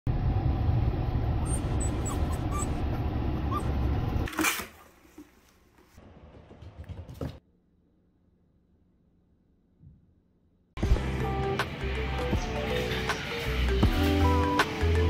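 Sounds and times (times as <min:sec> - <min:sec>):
puppy squeaking: 0:01.4 - 0:04.3.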